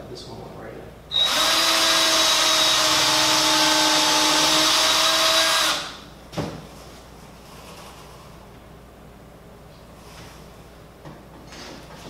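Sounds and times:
electric drill running: 1.1s - 6.0s.

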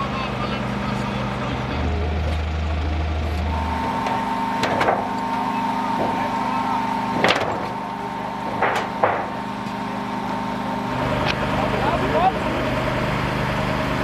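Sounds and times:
high whine: 0.0s - 13.0s
vehicle engine running: 0.0s - 14.0s
sharp knocks and clanks: 3.7s - 9.8s.

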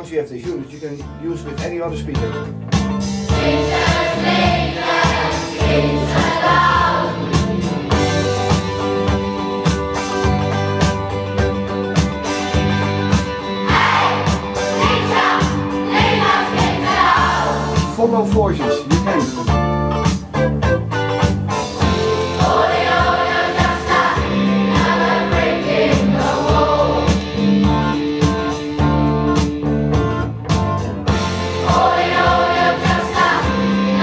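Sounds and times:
steady bass line: 1.0s - 34.0s
plucked guitar: 1.5s - 34.0s
voices singing together: 3.3s - 7.7s, 13.6s - 17.9s, 21.8s - 27.4s, 31.3s - 34.0s.

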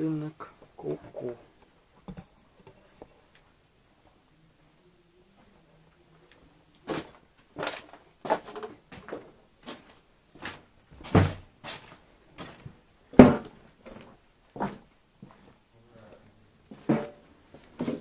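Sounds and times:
footsteps on wooden boards: 6.9s - 15.6s, 16.7s - 18.0s.

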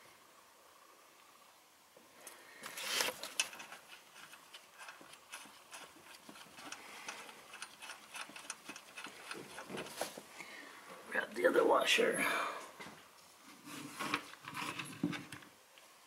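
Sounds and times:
metal scrape: 2.6s - 10.2s.

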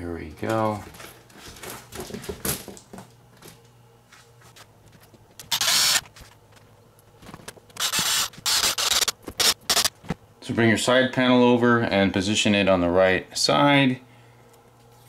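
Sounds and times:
electric screwdriver driving screw: 5.4s - 6.0s, 7.8s - 9.9s.

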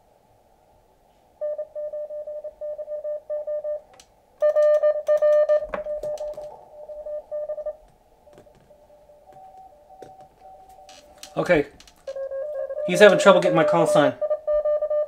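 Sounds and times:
morse code tone: 1.4s - 7.8s, 8.4s - 15.0s
radio band hiss: 12.8s - 14.2s.

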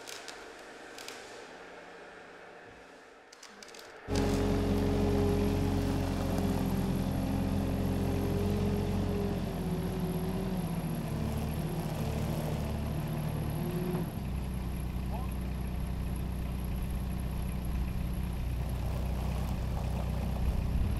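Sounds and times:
forklift engine running: 4.1s - 20.9s.

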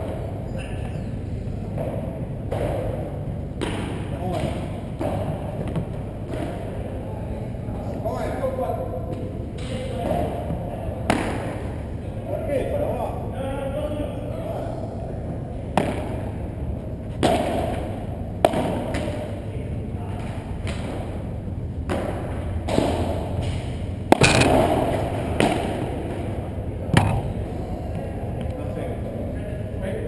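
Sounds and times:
steady low hum: 0.0s - 30.0s
padel ball hits and bounces: 24.1s - 25.6s, 26.9s - 27.4s.

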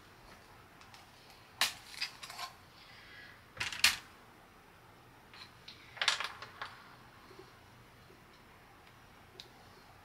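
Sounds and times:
wooden pieces clattering on table: 6.0s - 6.8s.

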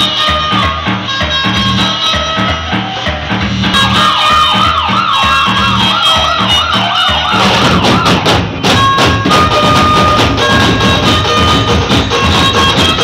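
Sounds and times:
drum band music: 0.0s - 13.0s
warbling siren-like wail: 3.8s - 10.4s.

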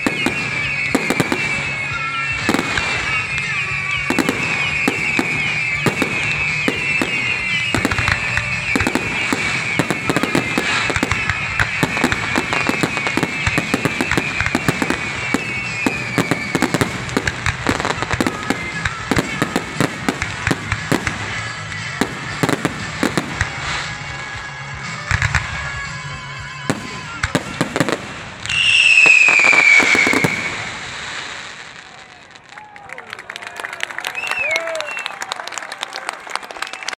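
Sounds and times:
high falling whistles: 0.0s - 18.9s, 28.4s - 31.6s
fireworks bangs and crackling: 0.0s - 33.1s.

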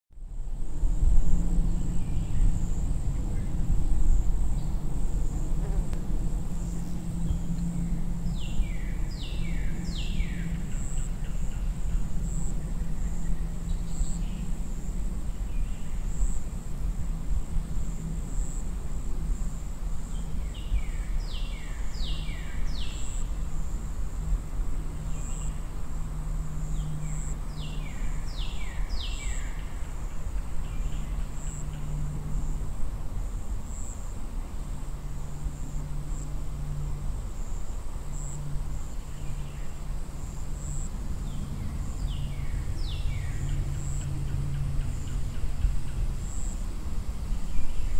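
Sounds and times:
low hum: 0.2s - 21.8s.

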